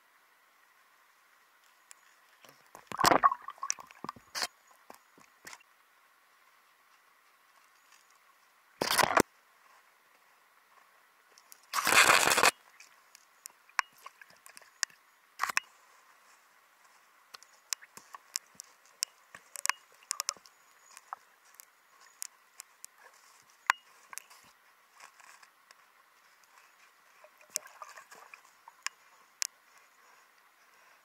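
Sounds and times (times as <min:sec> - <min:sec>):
underwater sharp clicks: 0:02.7 - 0:05.6, 0:11.5 - 0:15.7, 0:17.3 - 0:23.0, 0:27.5 - 0:29.6.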